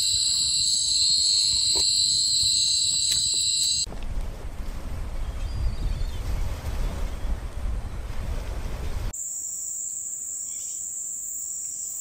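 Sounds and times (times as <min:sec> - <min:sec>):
cicada droning: 0:00.0 - 0:03.9.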